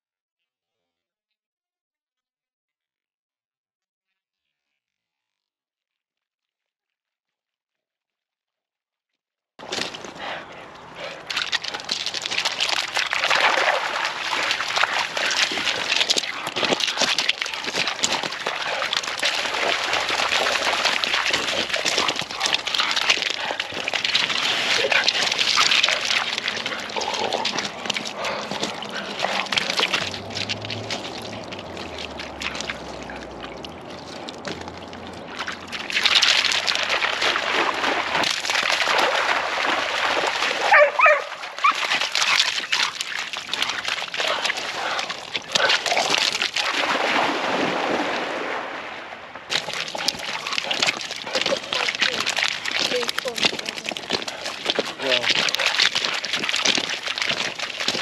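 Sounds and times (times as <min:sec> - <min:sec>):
dogs splashing through water: 0:09.6 - 0:58.0
paws on wet pebbles: 0:09.6 - 0:58.0
dog whining: 0:40.7 - 0:42.8.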